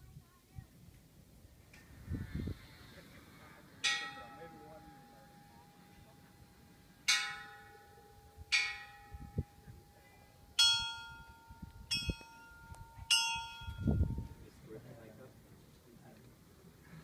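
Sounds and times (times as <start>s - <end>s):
metal bells ringing: 3.8s - 14.4s.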